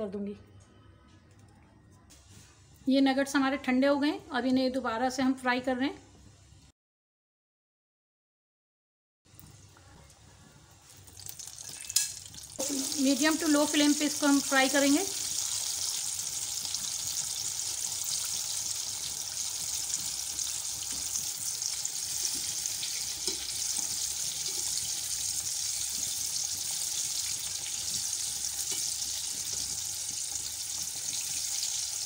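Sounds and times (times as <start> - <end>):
food sizzling in hot oil: 10.8 - 32.0.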